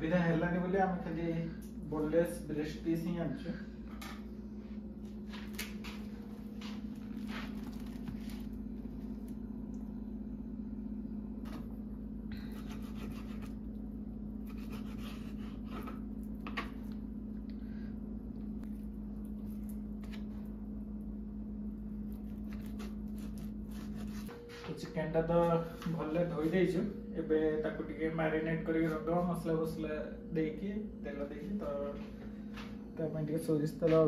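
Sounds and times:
steady low hum: 0.0 - 34.0
knife scraping cutting board: 12.5 - 13.6, 14.4 - 16.6, 22.4 - 24.8.

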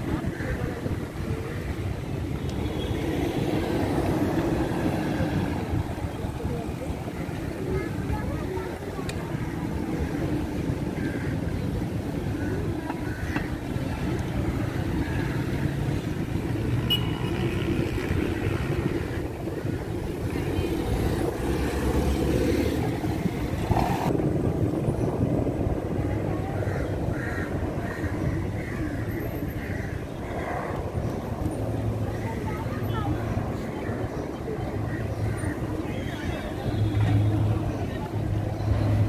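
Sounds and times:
low street rumble: 0.0 - 39.0
people chattering: 0.0 - 39.0.

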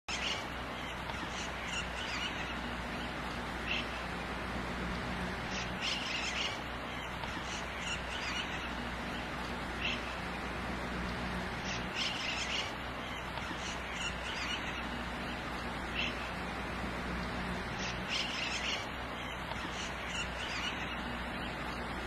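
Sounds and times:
birds chirping: 0.0 - 22.0
low hum: 0.1 - 22.0.

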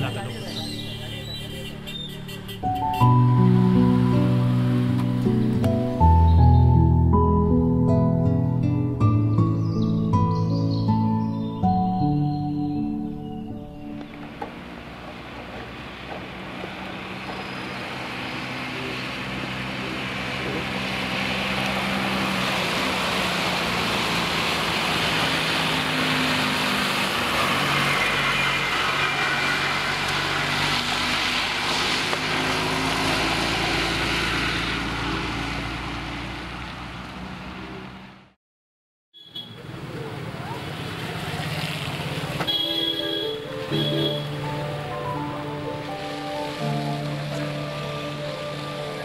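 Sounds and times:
bus engine rumble: 13.1 - 38.3, 39.6 - 49.0
motorbike engine passing: 14.1 - 38.2, 39.5 - 49.0
tyre hiss on wet road: 15.8 - 37.0.

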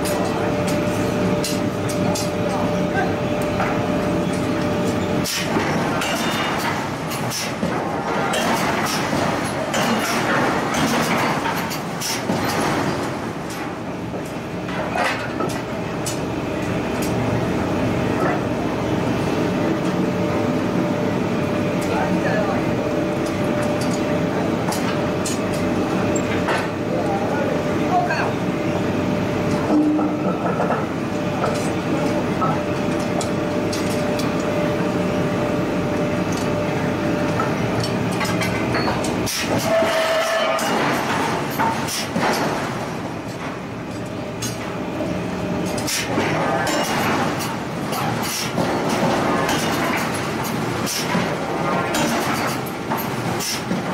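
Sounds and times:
machinery drone: 15.8 - 48.1.

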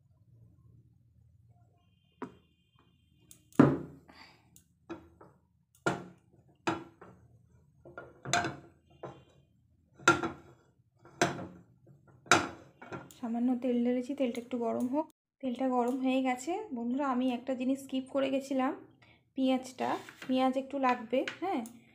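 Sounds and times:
utensils knocking and clattering: 7.9 - 9.3, 11.2 - 11.6, 12.2 - 13.2.

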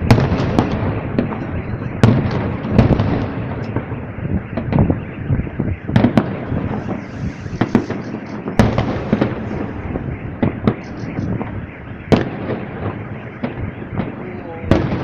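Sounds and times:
din of small firework reports: 0.0 - 15.0
fireworks shells bursting: 6.0 - 11.6.

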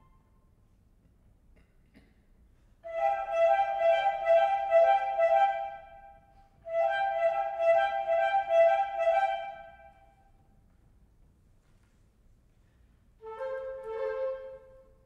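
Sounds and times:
flutes playing fast trill: 2.8 - 10.2, 13.2 - 15.0.

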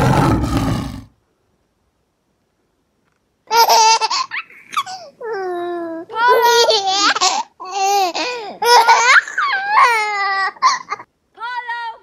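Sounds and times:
child babbling and squealing: 5.2 - 6.8.

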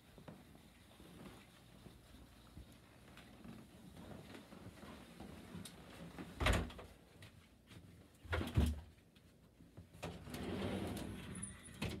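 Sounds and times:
closet doors rolling along track: 10.0 - 12.0.

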